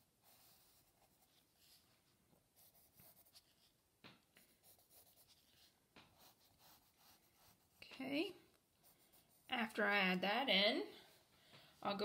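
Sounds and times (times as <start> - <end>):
pencil scratching on paper: 0.0 - 2.0, 2.6 - 3.7, 4.4 - 7.9, 8.8 - 9.7.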